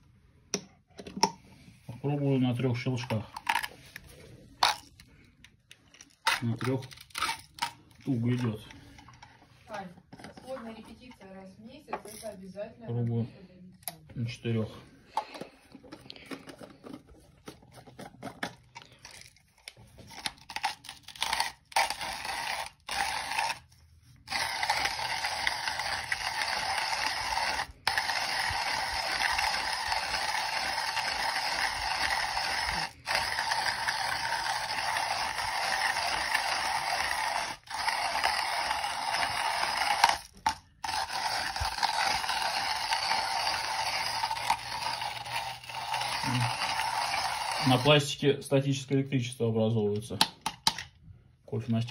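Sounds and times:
grinder and jar clicks and taps: 0.5s - 1.4s, 2.9s - 9.4s, 15.1s - 47.9s
hand grinder crunching coffee beans: 1.8s - 11.1s, 13.1s - 48.3s.

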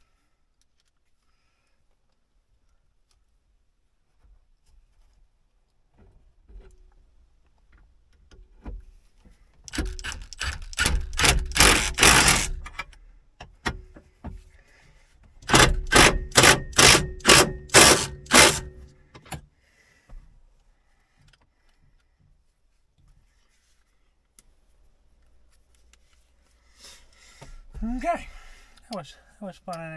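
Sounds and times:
impact driver hammering: 9.7s - 12.8s, 15.4s - 18.9s.

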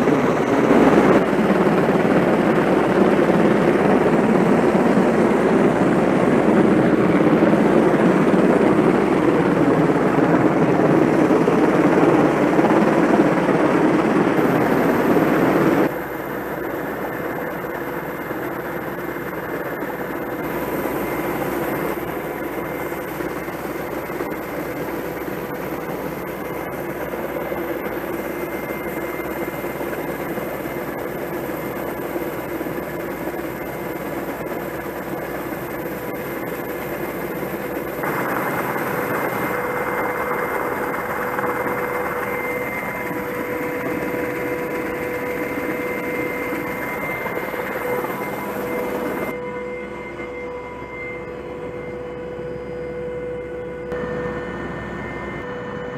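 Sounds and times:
faint steady tones: 0.0s - 55.9s
helicopter cabin hum: 0.0s - 55.9s
helicopter rotor noise: 0.0s - 55.9s
wind: 0.0s - 55.9s.

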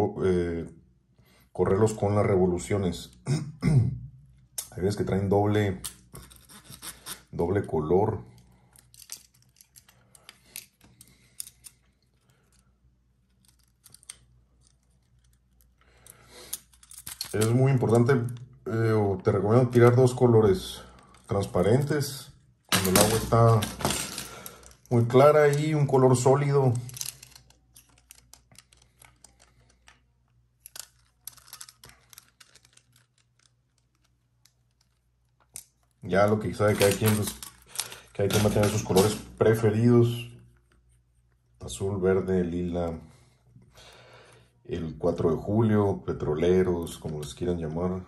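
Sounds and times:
plastic lure and hooks clicking: 26.9s - 36.0s.

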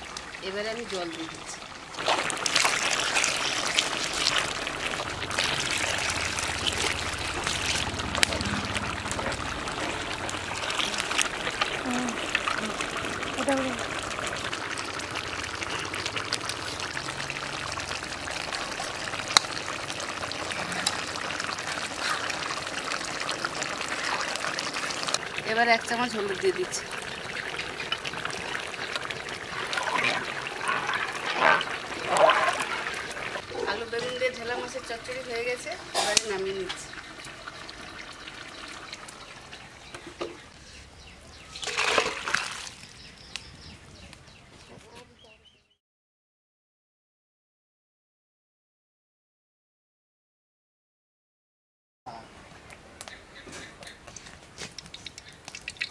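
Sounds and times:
curry bubbling: 0.0s - 40.5s, 41.4s - 43.2s, 53.8s - 55.9s.

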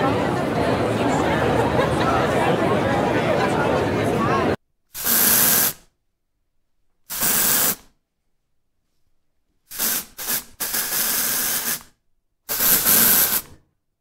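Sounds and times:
short bursts of steady hiss: 4.9s - 5.9s, 7.1s - 7.9s, 9.7s - 13.6s.

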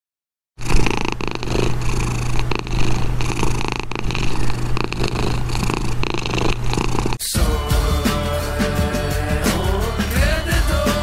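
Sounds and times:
kitten purring: 0.6s - 7.3s.

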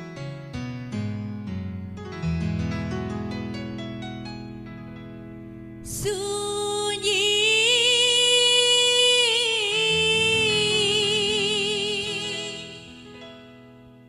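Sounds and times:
electronic keyboard chords: 0.0s - 14.0s
woman singing with vibrato: 5.8s - 13.5s.

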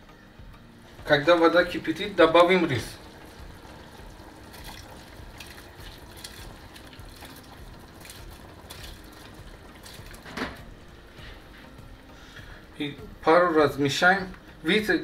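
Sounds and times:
liquid splashing and bubbling: 2.8s - 10.6s.

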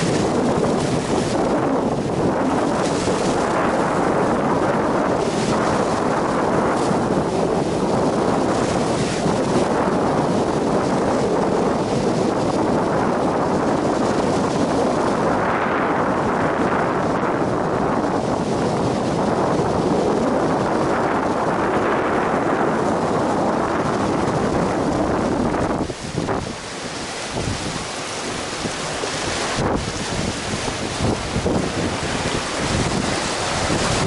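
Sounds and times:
rough sea breaking against rocks: 0.0s - 34.0s
wind buffeting microphone: 0.0s - 34.0s.

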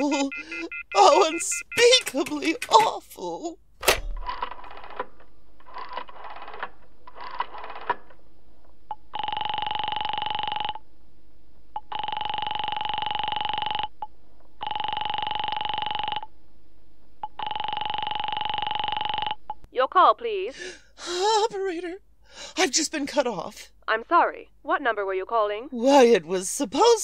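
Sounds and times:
telephone ringing: 0.0s - 2.8s, 8.9s - 10.8s, 11.8s - 14.0s, 14.6s - 16.3s, 17.2s - 19.5s.

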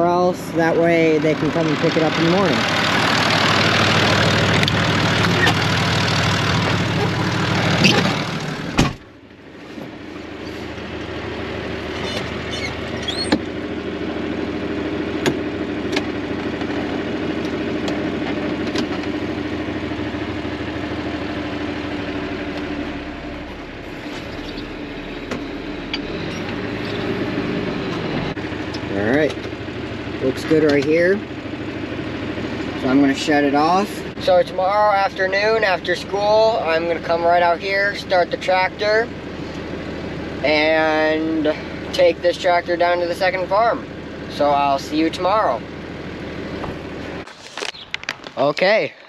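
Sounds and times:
tractor diesel engine running: 0.0s - 49.0s
cab door slamming: 7.7s - 9.1s.

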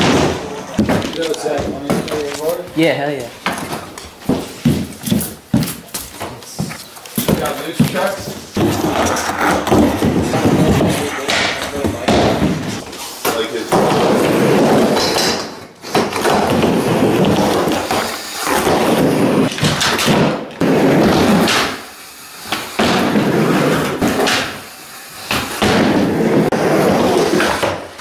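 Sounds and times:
boards clacking on wood: 3.4s - 21.8s
wheels rolling on a wooden ramp: 3.4s - 28.0s.

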